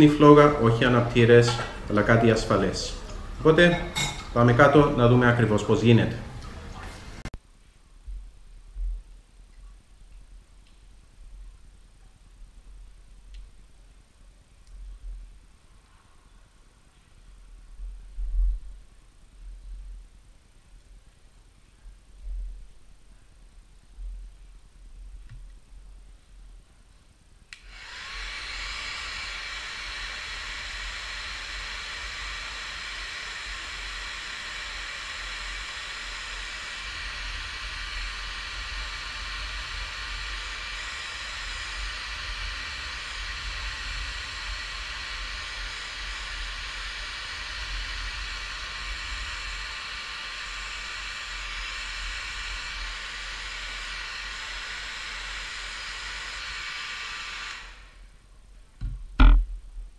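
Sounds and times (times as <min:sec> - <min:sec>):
hair dryer running: 0:00.0 - 0:05.2, 0:27.5 - 0:58.1.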